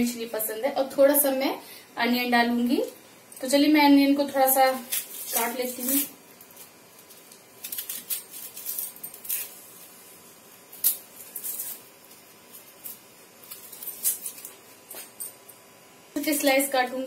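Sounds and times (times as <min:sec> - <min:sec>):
knife scraping onion skin: 0:04.7 - 0:10.0, 0:10.6 - 0:14.5.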